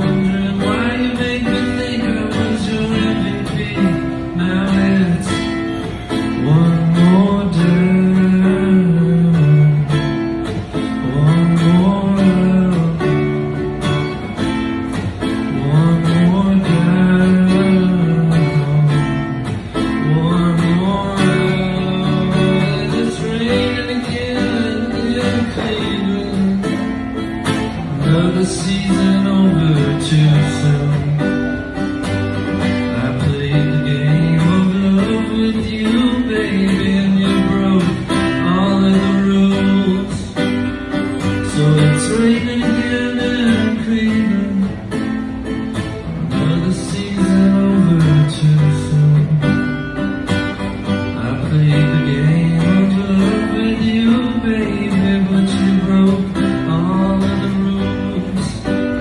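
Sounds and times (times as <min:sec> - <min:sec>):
acoustic guitar: 0:00.0 - 0:59.0.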